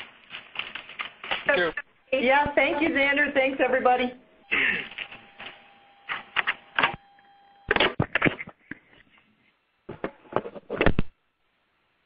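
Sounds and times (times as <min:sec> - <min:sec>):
faint phone line tone: 0:04.4 - 0:07.7.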